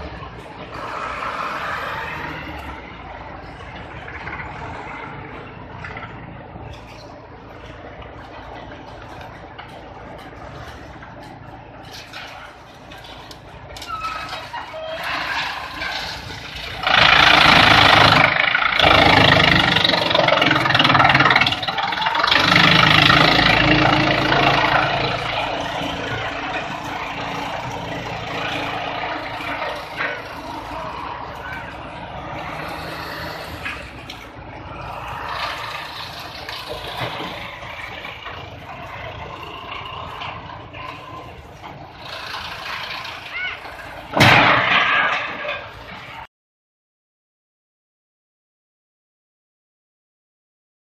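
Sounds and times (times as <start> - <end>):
wood chipper humming: 2.4 - 46.2.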